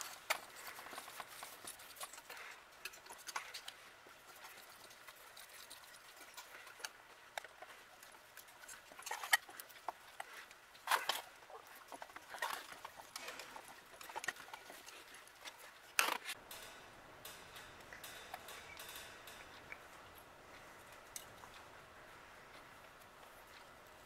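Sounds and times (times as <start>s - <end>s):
metal parts clicking on workbench: 16.0s - 20.2s.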